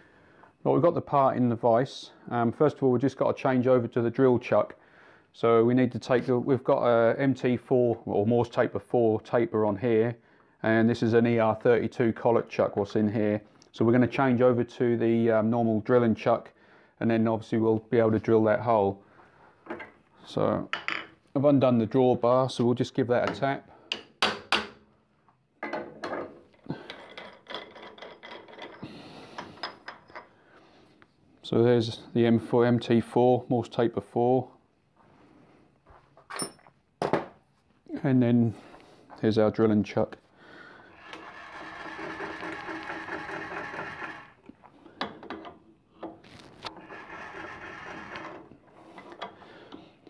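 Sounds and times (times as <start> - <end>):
metal clinking and scraping: 25.7 - 30.4
drill chuck whirring: 40.9 - 44.5, 46.7 - 48.6.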